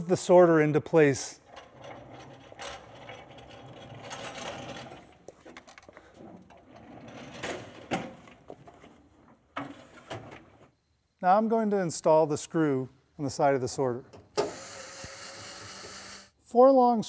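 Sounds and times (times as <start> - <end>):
cabinet rolling on casters: 1.4 - 5.2, 6.1 - 10.7.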